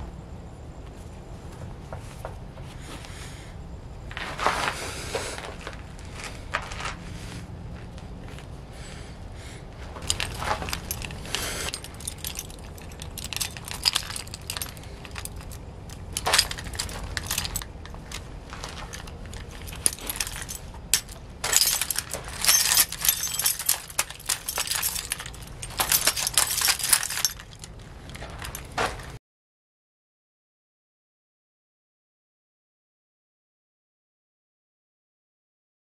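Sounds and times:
keys jangling: 10.0 - 29.2.

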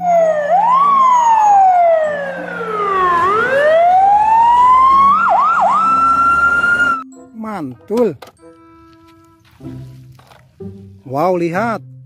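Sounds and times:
fire engine siren: 0.0 - 7.1.

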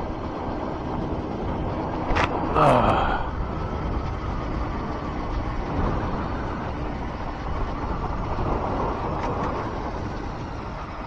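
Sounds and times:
wind and road noise: 0.0 - 11.0
motorcycle engine running: 3.3 - 11.0.

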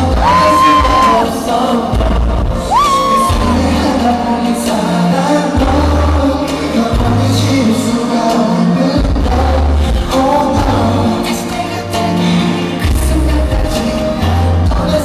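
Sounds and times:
live pop music with singing: 0.0 - 15.0
long high vocal notes: 2.6 - 3.9.

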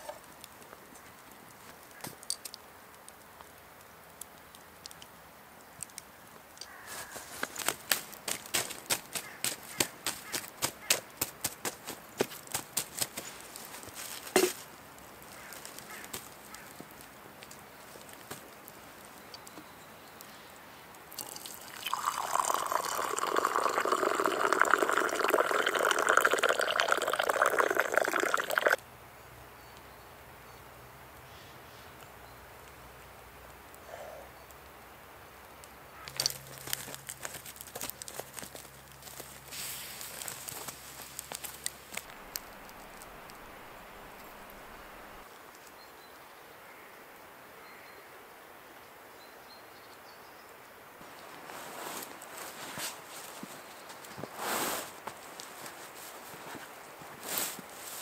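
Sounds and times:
liquid pouring into cup: 21.2 - 28.8
sharp crackling clicks: 40.0 - 44.8.

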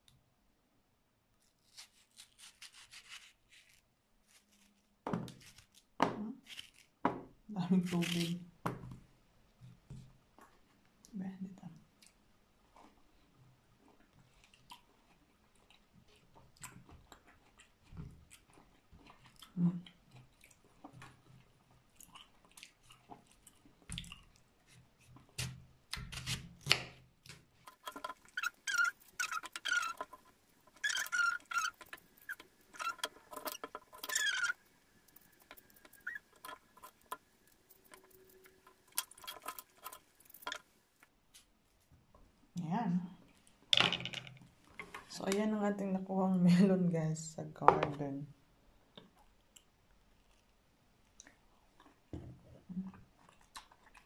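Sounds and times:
knife cutting through watermelon: 1.6 - 5.8.

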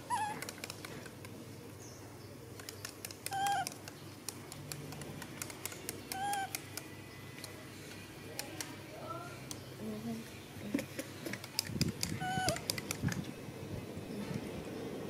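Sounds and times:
baby monkey squeaking: 0.0 - 0.4, 3.2 - 3.8, 6.1 - 6.6, 12.0 - 12.8.

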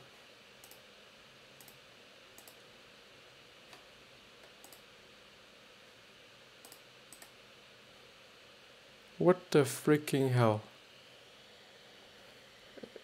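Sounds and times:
fan hiss: 0.0 - 13.0
faint sharp clicks: 6.6 - 7.4.

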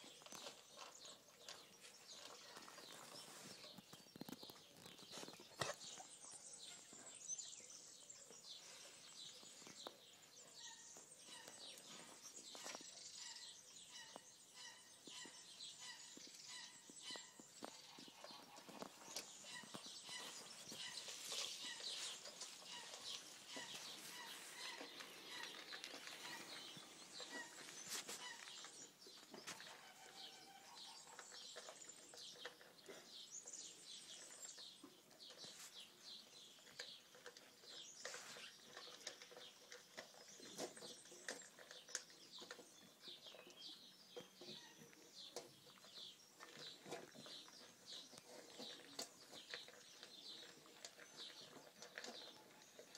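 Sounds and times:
dog crunching dry kibble: 17.2 - 29.0, 45.9 - 52.9.

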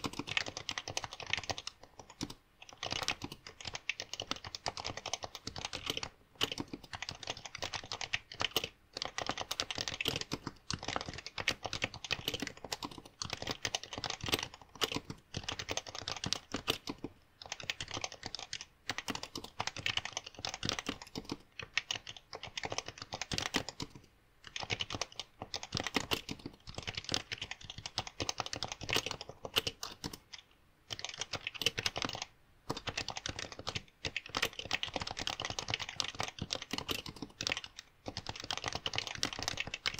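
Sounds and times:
fast keyboard typing: 0.0 - 39.9.

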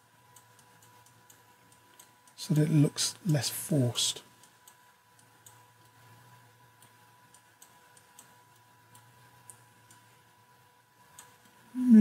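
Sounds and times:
faint room hum: 0.0 - 12.0
quiet computer mouse clicks: 0.3 - 2.4, 4.4 - 6.0, 6.8 - 10.1, 11.1 - 11.6.

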